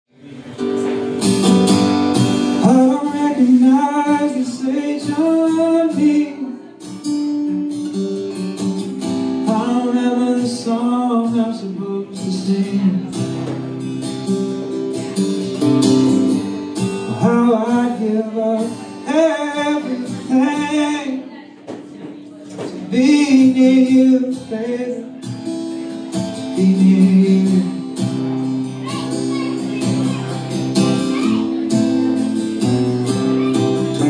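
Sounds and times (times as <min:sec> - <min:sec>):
strummed acoustic guitar: 0:00.1 - 0:34.0
electric guitar: 0:00.3 - 0:34.0
man singing: 0:02.4 - 0:07.6, 0:09.4 - 0:13.6, 0:16.3 - 0:21.4, 0:22.4 - 0:25.5, 0:26.1 - 0:28.4, 0:30.9 - 0:34.0.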